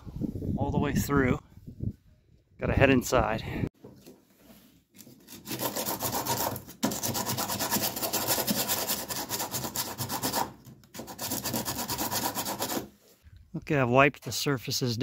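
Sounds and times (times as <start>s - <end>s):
hand sanding fiberglass: 5.3s - 13.0s.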